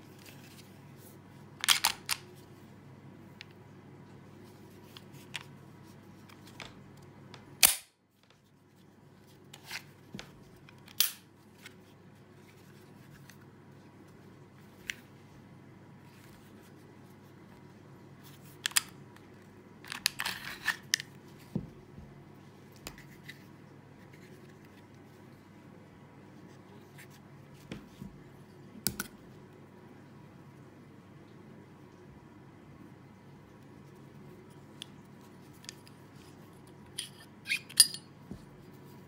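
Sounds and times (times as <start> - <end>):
pistol parts clicking: 37.0 - 38.1.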